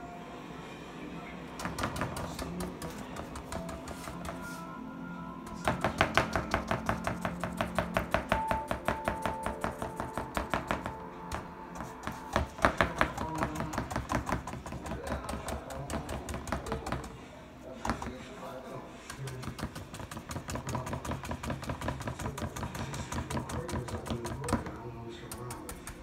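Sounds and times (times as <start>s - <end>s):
paintbrush dabbing wet paper: 2.2s - 4.7s, 11.8s - 26.0s.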